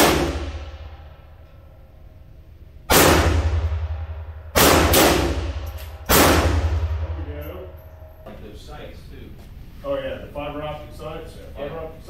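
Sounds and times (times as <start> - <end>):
gunshots echoing indoors: 0.0 - 1.9, 2.8 - 8.2.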